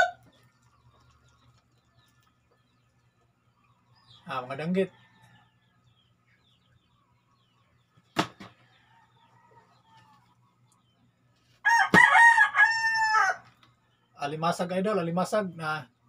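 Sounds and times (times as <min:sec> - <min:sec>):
rooster crowing: 0:00.0 - 0:00.2, 0:11.6 - 0:13.5.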